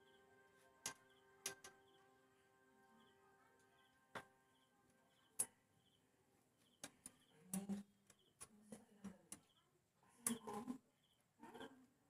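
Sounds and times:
hand tools clicking and tapping: 0:00.8 - 0:01.8.

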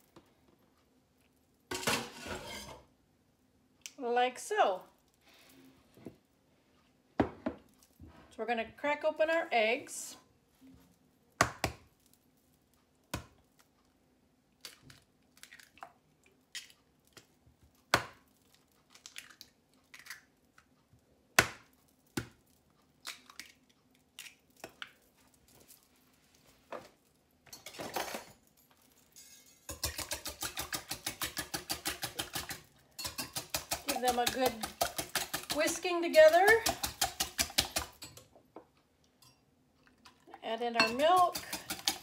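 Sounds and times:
whisk clicking against glass bowl: 0:29.7 - 0:38.1, 0:40.8 - 0:42.0.

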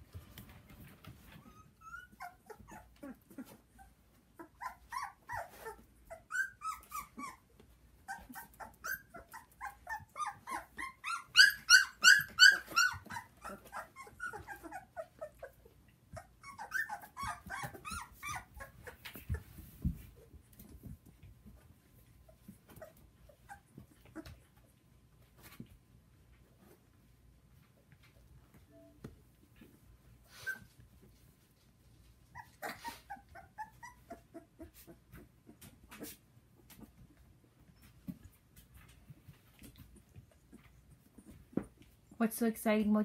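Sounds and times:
puppies making high-pitched calls: 0:01.3 - 0:19.6, 0:30.2 - 0:30.8, 0:32.2 - 0:36.1.

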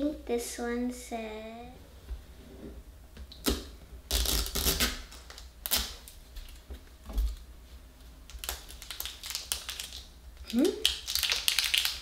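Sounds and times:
wrapping crinkling: 0:04.1 - 0:07.4, 0:08.3 - 0:12.0.

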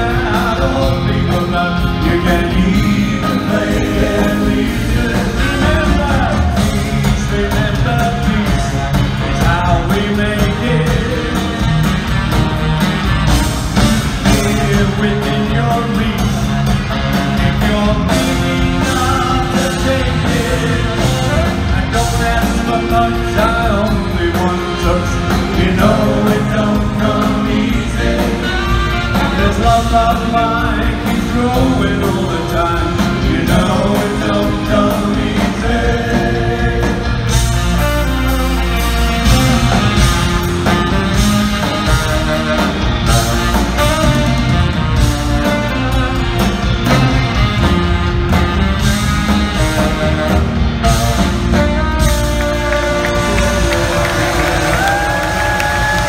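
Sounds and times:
person singing lead vocal: 0:00.0 - 0:11.9, 0:14.1 - 0:37.7, 0:53.1 - 0:56.0
rock band playing live: 0:00.0 - 0:56.0
saxophone: 0:00.0 - 0:56.0.

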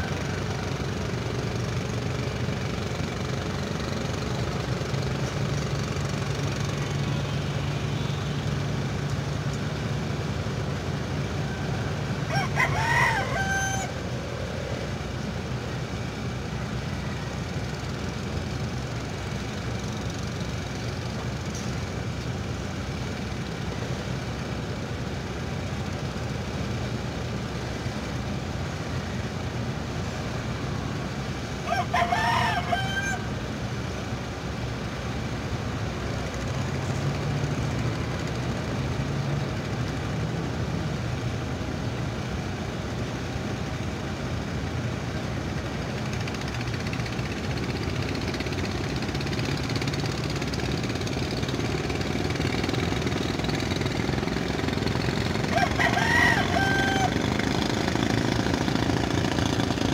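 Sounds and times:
rooster crowing: 0:00.0 - 0:01.0, 0:11.2 - 0:14.8, 0:16.8 - 0:18.0, 0:31.6 - 0:33.4, 0:55.2 - 0:57.8
ship engine drone: 0:00.0 - 0:59.9.

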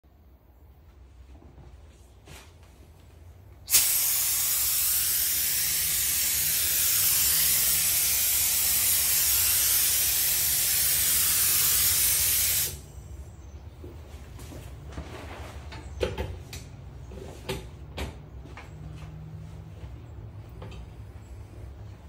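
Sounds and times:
air spray gun hissing: 0:03.7 - 0:12.9.

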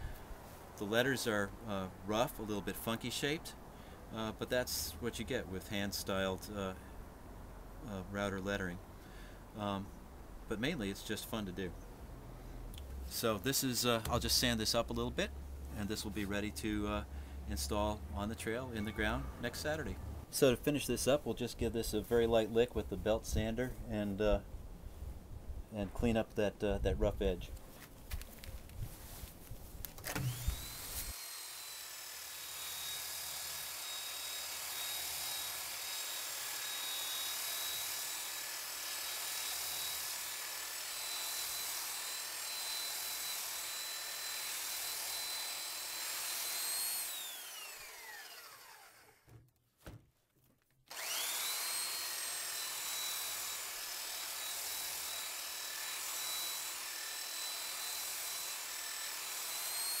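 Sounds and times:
belt sander sanding wood: 0:30.2 - 0:49.2, 0:50.9 - 1:00.0.

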